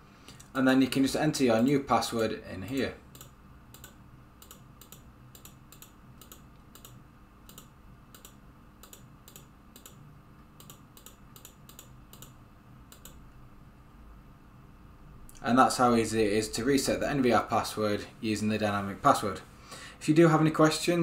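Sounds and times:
computer mouse clicks: 3.1s - 10.0s, 10.6s - 13.3s.

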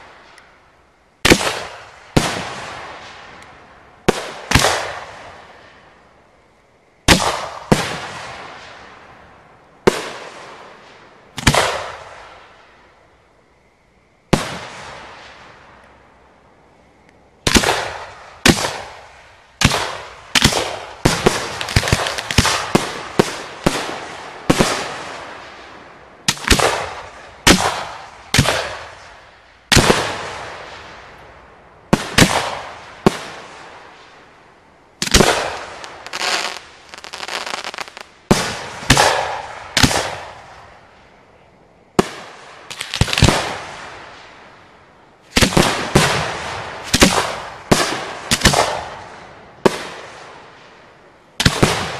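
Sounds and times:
firework bangs: 1.2s - 3.4s, 4.0s - 5.8s, 7.0s - 9.2s, 9.8s - 12.6s, 14.3s - 15.7s, 17.4s - 31.1s, 31.9s - 34.2s, 35.0s - 40.9s, 42.0s - 44.4s, 45.3s - 50.6s, 51.4s - 51.9s.

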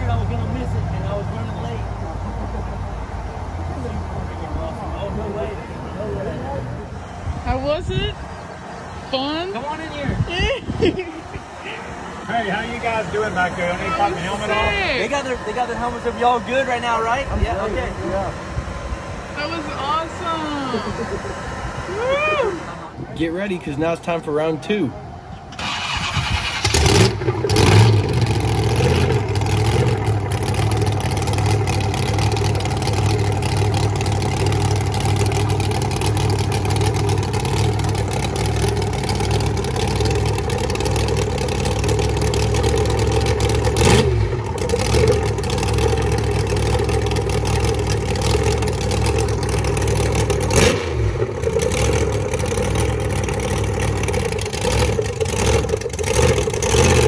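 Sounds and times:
monster truck engine idling: 25.3s - 57.0s.

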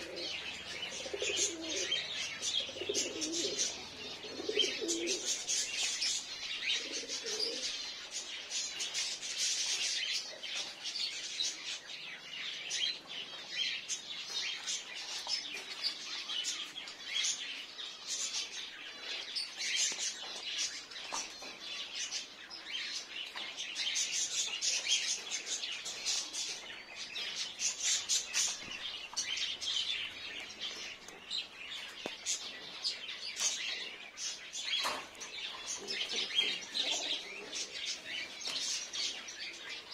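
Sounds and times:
pigeon cooing: 0.0s - 5.8s, 6.7s - 7.8s, 35.7s - 38.4s
birds chirping: 0.0s - 39.9s.

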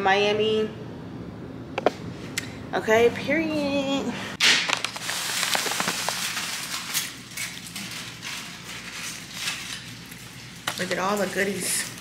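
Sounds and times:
food packaging rustling: 4.6s - 12.0s.

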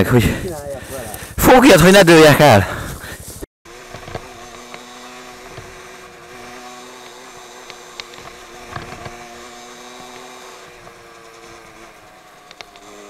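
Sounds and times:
motorcycle engine running: 3.7s - 13.0s
sharp knocks and clicks: 7.0s - 9.4s.

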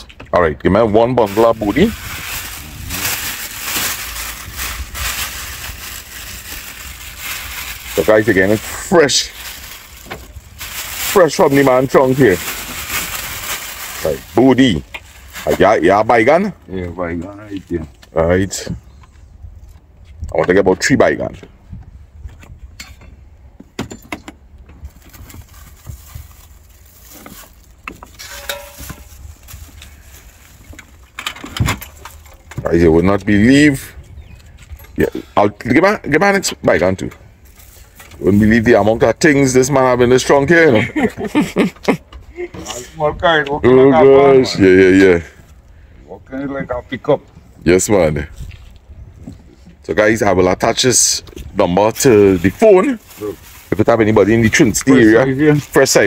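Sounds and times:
plastic bags rustling: 1.0s - 16.3s, 24.8s - 32.5s, 37.4s - 38.6s, 51.9s - 56.0s
knocks and clinks of vegetables: 27.2s - 29.2s.

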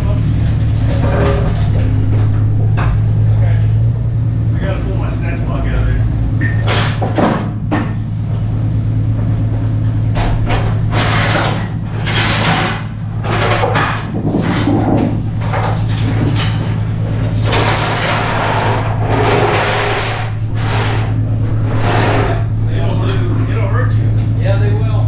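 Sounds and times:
low mechanical hum: 0.0s - 25.0s
clattering and knocking on wood: 0.6s - 3.3s, 6.4s - 22.4s.

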